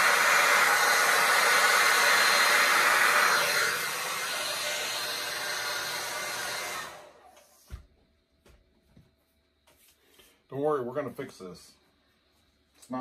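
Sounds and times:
hair dryer blowing: 0.0s - 7.8s.

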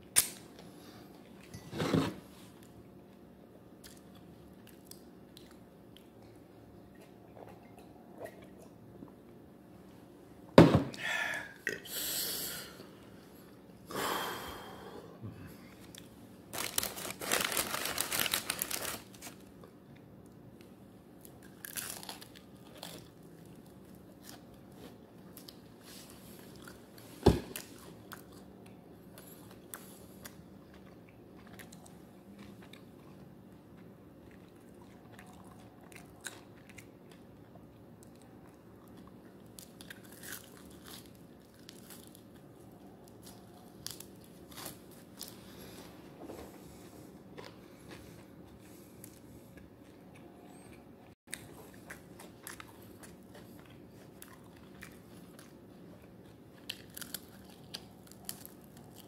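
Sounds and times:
crunching fried chicken: 16.0s - 19.7s, 21.2s - 25.7s, 38.0s - 45.5s, 51.3s - 59.0s.

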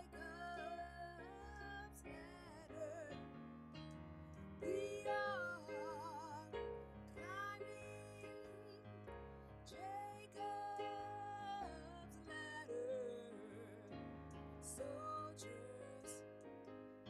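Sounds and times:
woman singing gospel melody: 0.0s - 3.1s, 4.6s - 6.6s, 7.2s - 8.9s, 9.7s - 14.0s, 14.6s - 16.3s
sustained piano chords: 0.0s - 17.0s.

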